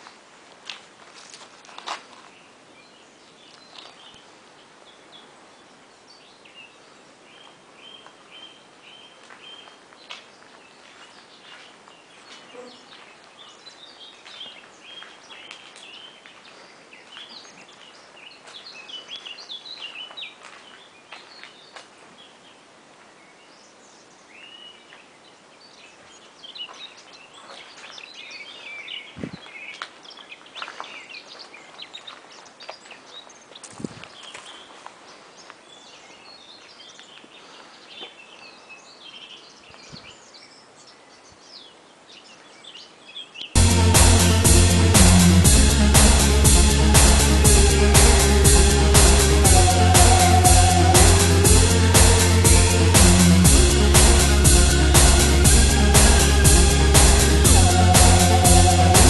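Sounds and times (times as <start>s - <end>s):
small songbirds chirping and singing: 2.4s - 22.6s, 23.2s - 43.6s.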